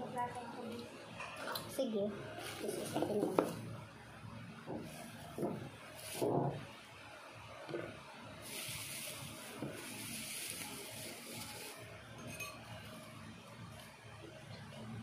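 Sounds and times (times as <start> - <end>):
steady hiss: 8.4 - 12.1.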